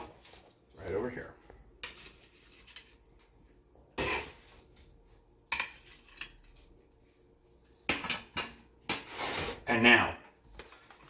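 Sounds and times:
kitchenware clinking: 3.9s - 4.6s, 5.4s - 6.6s, 7.9s - 9.0s.

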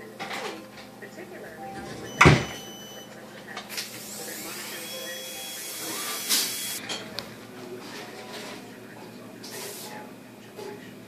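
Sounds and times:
dental equipment hissing: 3.7s - 6.8s.

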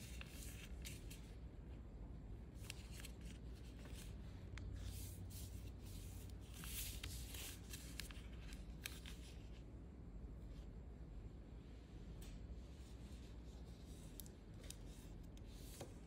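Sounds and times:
paper rustling and creasing: 0.0s - 1.4s, 2.5s - 9.6s.

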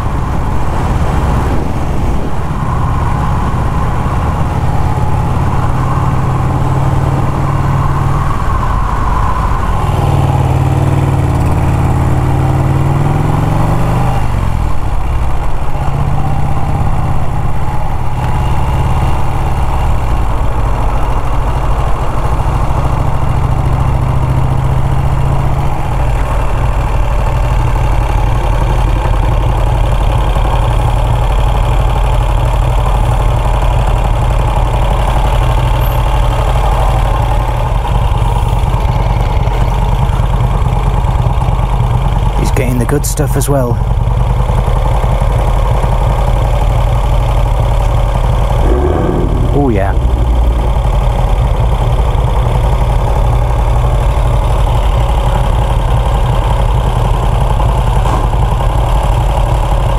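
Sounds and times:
wind rush: 0.0s - 4.3s, 48.5s - 52.2s
motorcycle engine running: 0.0s - 59.9s.

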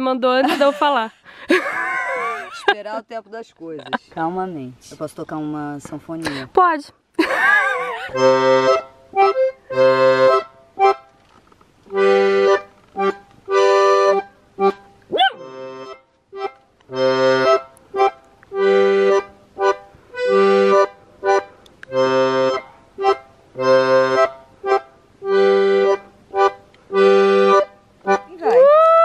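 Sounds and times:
accordion playing chords: 7.6s - 28.6s.

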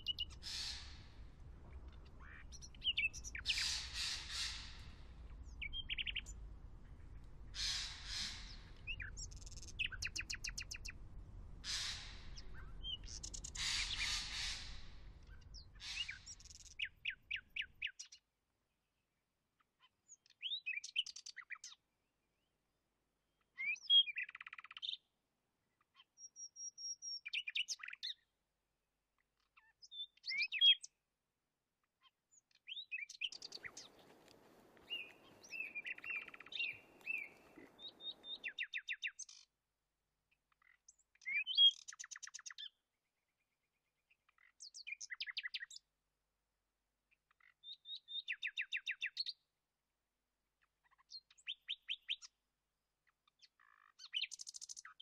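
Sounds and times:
birds chirping: 0.0s - 11.0s, 11.6s - 17.8s, 32.7s - 39.0s
faint low rustle: 0.1s - 16.4s, 33.4s - 38.4s.

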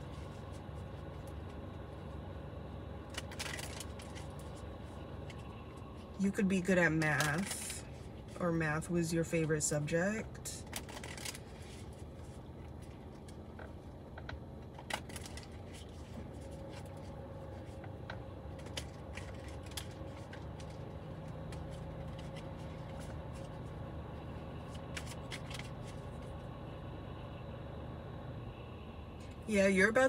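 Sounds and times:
low hum inside car: 0.0s - 30.0s
cards being shuffled: 10.7s - 26.4s.

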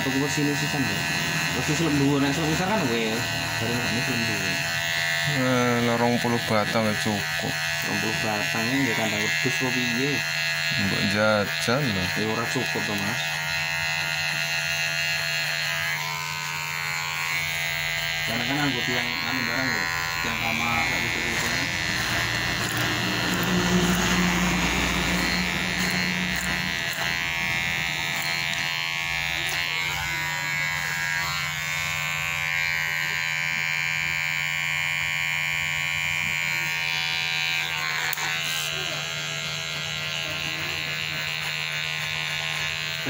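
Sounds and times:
electric hair clipper buzzing: 0.0s - 43.0s.

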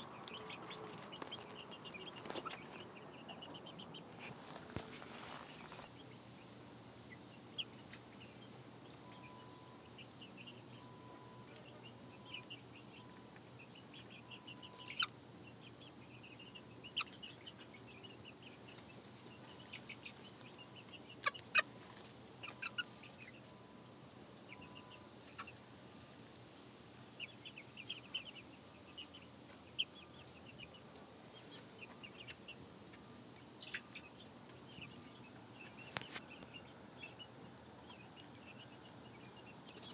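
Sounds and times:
chicks peeping and chirping: 0.0s - 39.9s.

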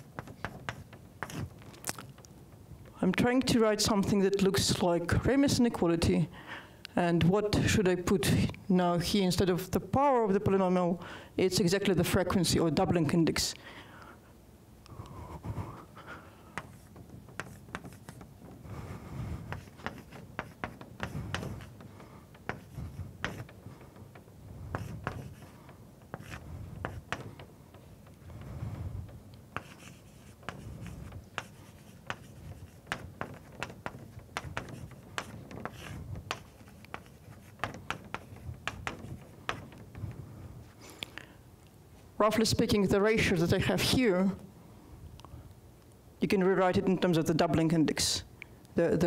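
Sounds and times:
chalk tapping and scraping: 0.0s - 1.6s, 16.5s - 40.2s.

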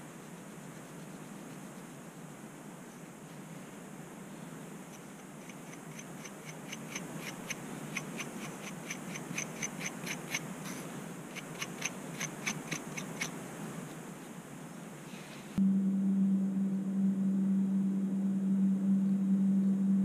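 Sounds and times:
scratching scalp through hair: 5.0s - 13.4s.

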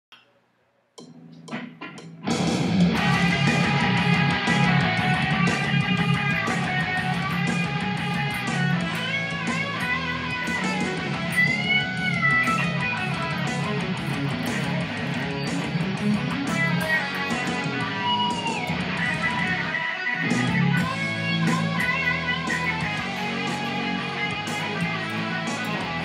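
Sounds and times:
drums: 1.0s - 26.0s
fast electric guitar lead: 1.5s - 26.0s
bass: 1.6s - 26.0s.

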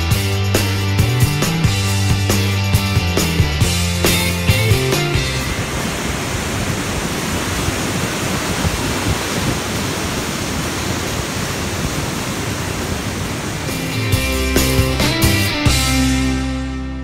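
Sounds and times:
music: 0.0s - 5.8s, 13.6s - 17.0s
river rapids rushing: 4.1s - 15.6s.

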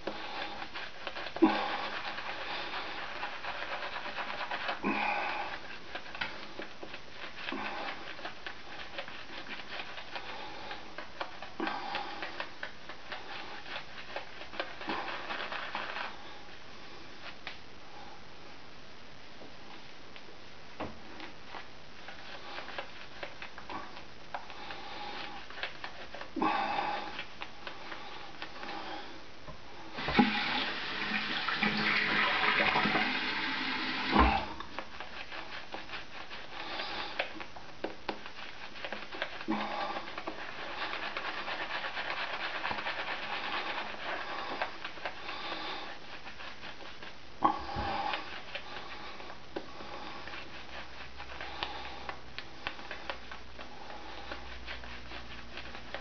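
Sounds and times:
shaving brush swishing lather: 0.0s - 17.6s, 21.2s - 56.0s
water running: 30.0s - 34.8s.

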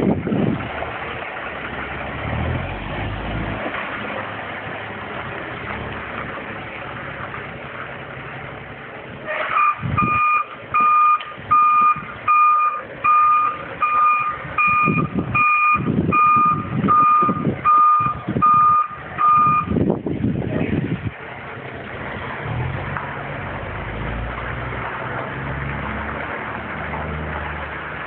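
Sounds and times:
diesel truck engine running: 0.0s - 28.0s
truck reversing alarm beeping: 9.5s - 19.8s.

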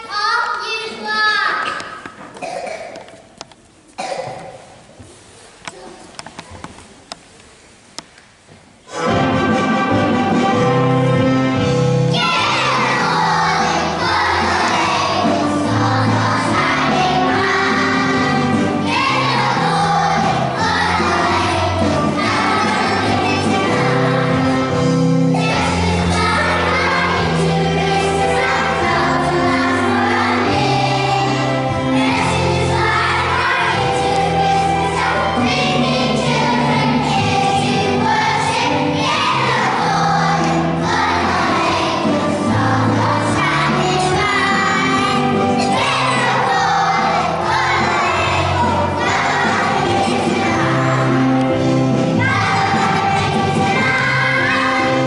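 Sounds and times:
group singing: 12.1s - 55.0s.

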